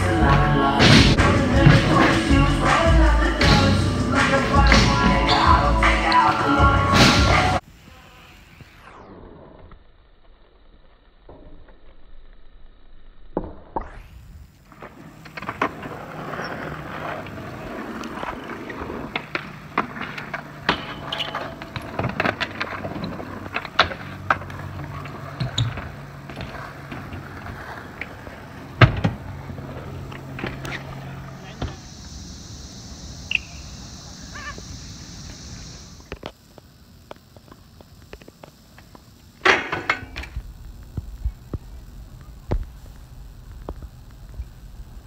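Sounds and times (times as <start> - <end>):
bike tyres rolling on concrete: 0.0 - 45.0
bike knocks and clacks on ground: 19.1 - 30.9.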